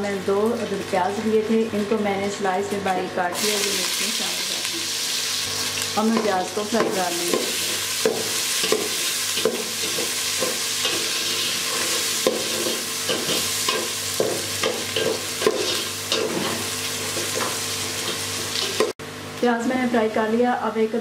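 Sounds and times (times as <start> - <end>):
onions sizzling in hot oil: 0.0 - 19.0
metal spatula scraping a pot: 8.1 - 18.9.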